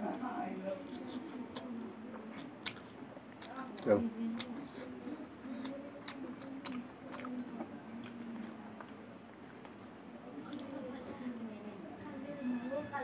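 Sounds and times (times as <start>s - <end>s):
faint low hum: 0.0s - 13.0s
wet chewing mouth clicks: 0.9s - 10.7s.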